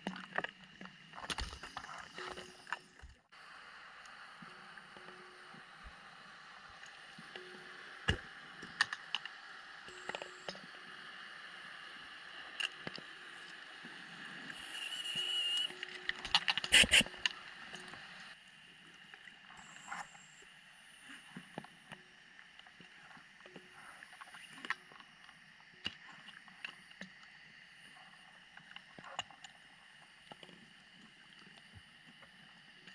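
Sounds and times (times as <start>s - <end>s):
faint underwater hiss: 3.4s - 16.0s
short hiss: 16.7s - 17.1s.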